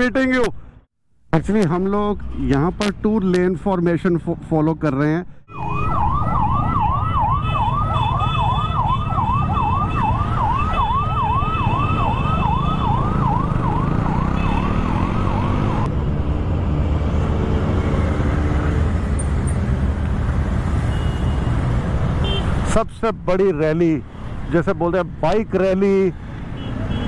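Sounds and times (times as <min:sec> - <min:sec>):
siren warbling: 0:05.5 - 0:15.9.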